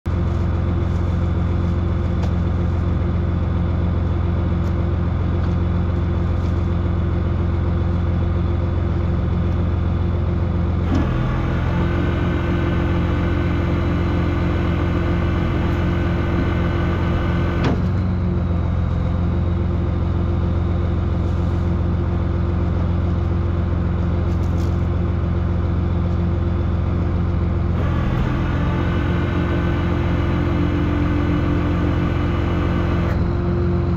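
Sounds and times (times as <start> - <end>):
engine droning: 0.1 - 33.9
bright whine: 11.7 - 17.9, 27.7 - 33.9.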